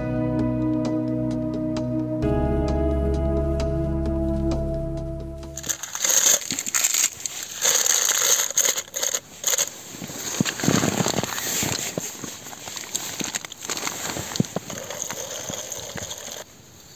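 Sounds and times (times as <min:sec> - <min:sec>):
plastic bag crinkling and rustling: 0:05.6 - 0:16.5.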